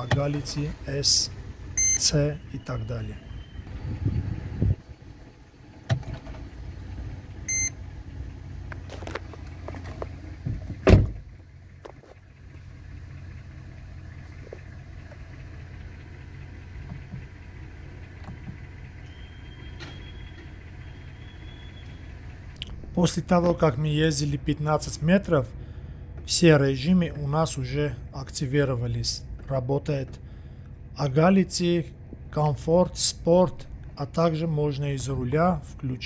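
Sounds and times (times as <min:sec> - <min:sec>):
engine idling hum: 0:00.0 - 0:36.0
loud thump: 0:10.4 - 0:11.2.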